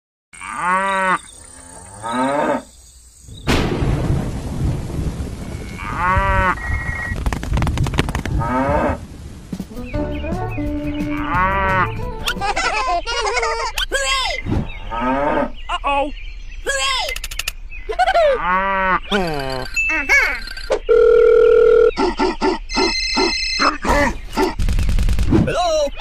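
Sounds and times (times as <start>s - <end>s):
cows mooing: 0.4s - 2.7s, 5.6s - 6.7s, 8.4s - 9.0s, 14.9s - 15.6s
rain hiss: 3.0s - 10.0s.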